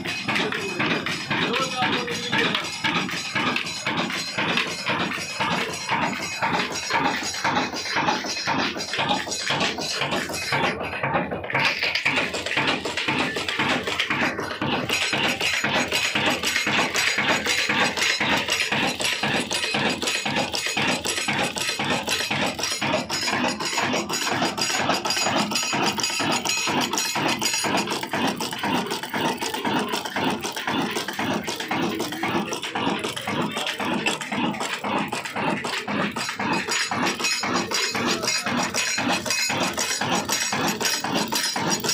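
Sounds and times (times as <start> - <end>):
diesel engine clattering: 0.0 - 41.9.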